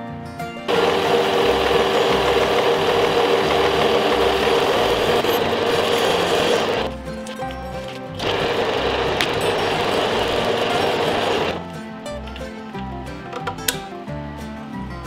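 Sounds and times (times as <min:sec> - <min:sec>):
metal lathe cutting: 0:00.7 - 0:06.9, 0:08.2 - 0:11.6.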